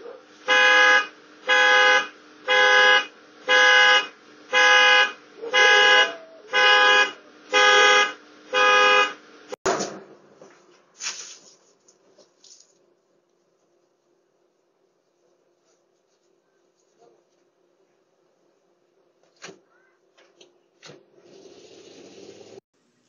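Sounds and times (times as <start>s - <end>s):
car alarm horn honks: 0.4s - 9.2s.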